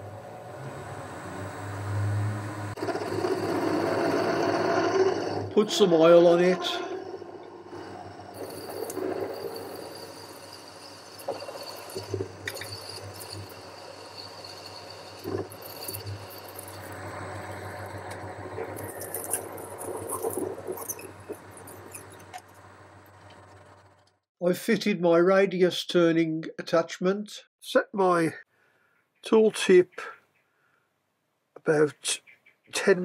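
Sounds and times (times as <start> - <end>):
lathe motor hum: 0.0 - 24.0
tool cutting spinning metal bar: 1.7 - 22.5.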